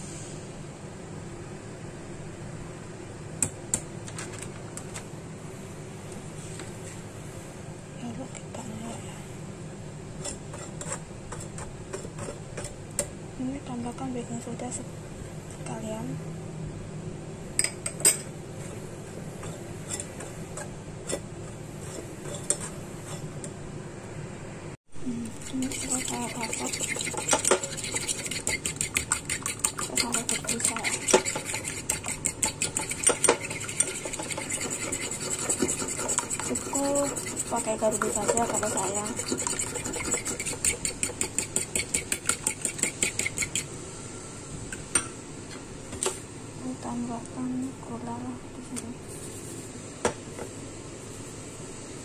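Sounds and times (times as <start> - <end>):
fork beating egg in bowl: 10.2 - 13.1, 19.4 - 23.6, 25.1 - 43.7
spoon scraping metal sieve: 25.2 - 43.7.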